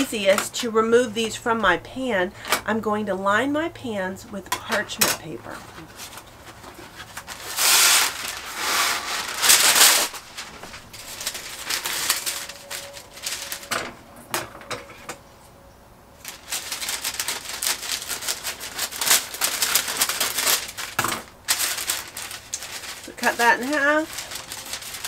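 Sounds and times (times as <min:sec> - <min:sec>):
parchment paper rustling: 0:04.6 - 0:14.0, 0:16.2 - 0:25.0.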